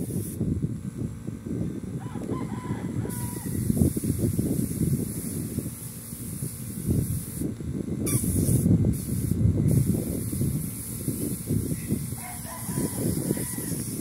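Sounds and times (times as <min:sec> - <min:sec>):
spray gun hissing: 0:00.0 - 0:00.4, 0:03.0 - 0:14.0
rooster crowing: 0:02.0 - 0:03.6, 0:12.2 - 0:13.9.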